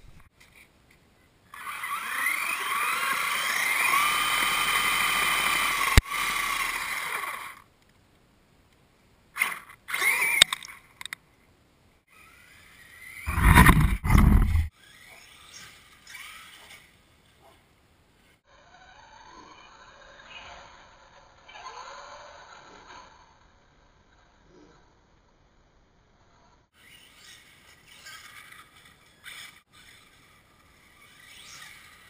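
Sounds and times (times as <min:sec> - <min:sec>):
electric motor whining: 0:01.6 - 0:07.6, 0:13.3 - 0:14.7
low rumble: 0:13.3 - 0:14.7
tyres spinning in dirt: 0:13.3 - 0:14.7.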